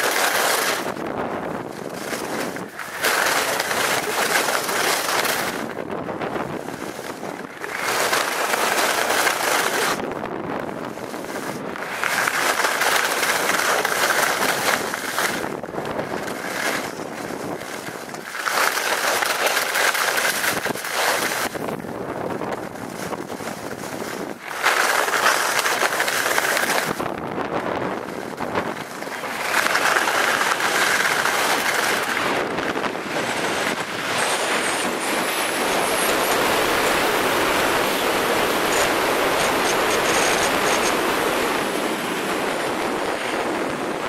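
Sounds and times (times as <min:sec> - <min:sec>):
wind on microphone: 0:00.0 - 0:18.4, 0:19.0 - 0:44.0
skis scraping over snow: 0:00.0 - 0:44.0.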